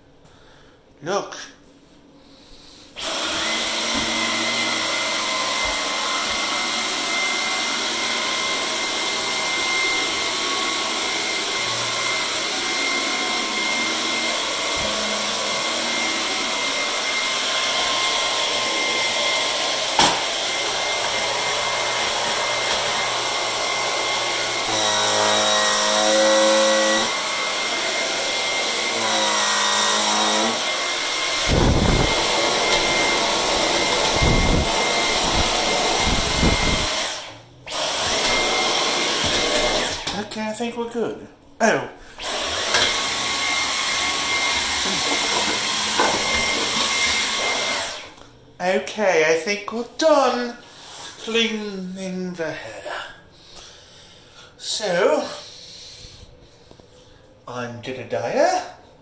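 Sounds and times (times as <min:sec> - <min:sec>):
stick vacuum cleaner whining: 0:02.9 - 0:40.4, 0:42.0 - 0:48.3.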